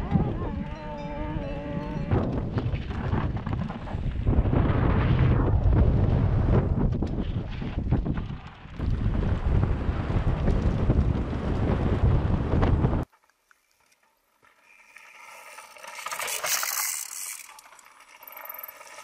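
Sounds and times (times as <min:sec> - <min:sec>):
wind buffeting microphone: 0:00.0 - 0:13.1.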